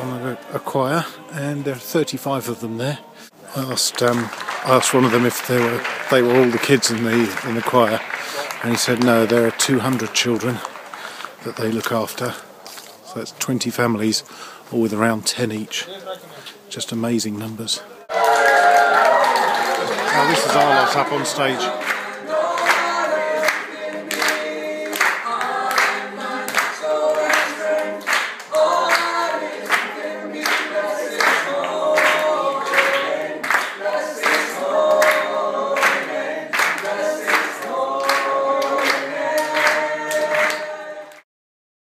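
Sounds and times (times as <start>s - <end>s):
adults and children singing: 0.0s - 4.1s, 19.7s - 41.2s
hand claps: 3.9s - 12.0s, 21.8s - 41.2s.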